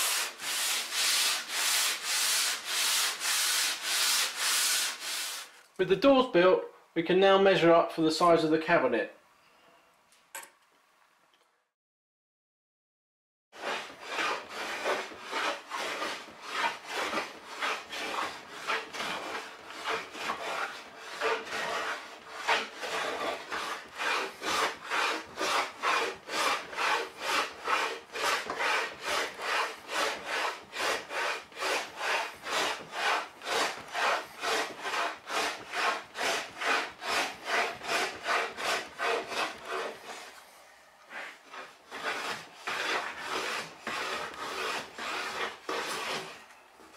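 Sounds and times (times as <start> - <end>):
hand plane rasping on wood: 0.0 - 5.4, 13.6 - 40.3, 41.1 - 46.4.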